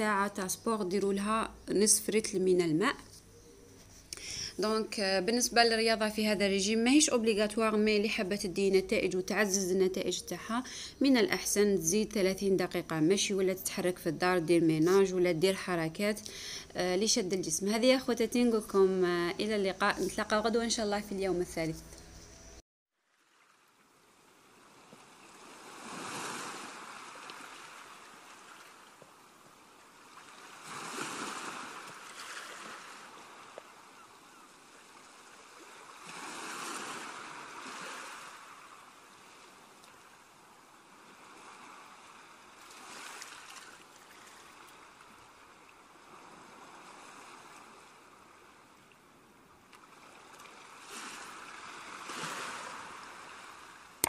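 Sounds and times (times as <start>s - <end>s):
ocean waves washing on shore: 23.2s - 48.8s, 49.8s - 54.0s.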